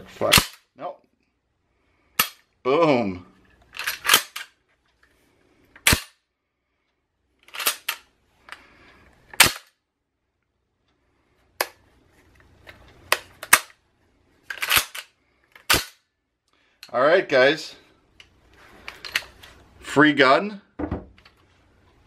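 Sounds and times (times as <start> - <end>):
sharp metallic clacks of shotgun action: 3.8 - 4.5, 7.5 - 8.0.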